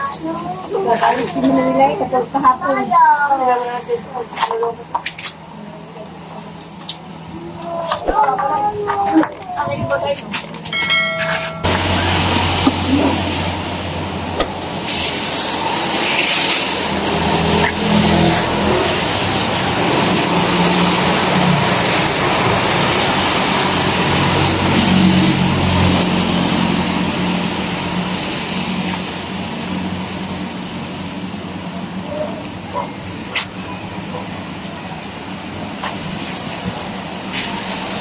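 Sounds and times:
passing vehicle engine hum: 0:05.5 - 0:38.0
tyres hissing on wet road: 0:11.7 - 0:38.0.

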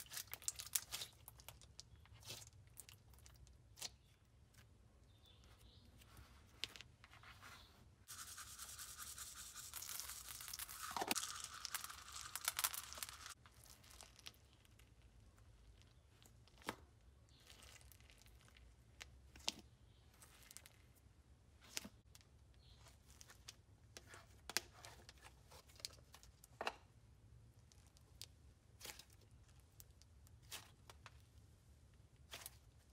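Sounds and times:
hands squishing slime: 0:00.0 - 0:06.7, 0:08.1 - 0:14.9.

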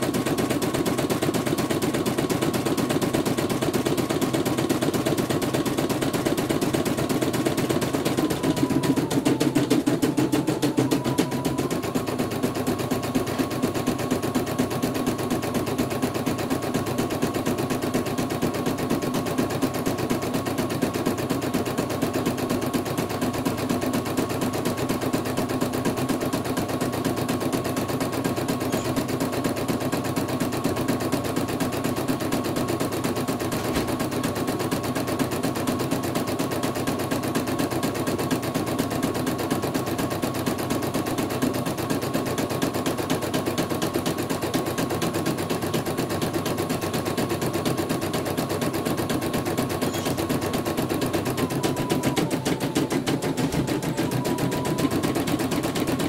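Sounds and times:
machine high whine: 0:49.4 - 0:56.0.

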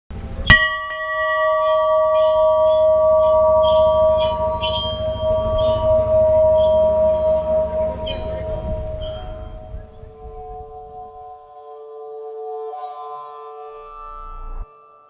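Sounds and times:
large bell struck and ringing: 0:00.2 - 0:11.2.

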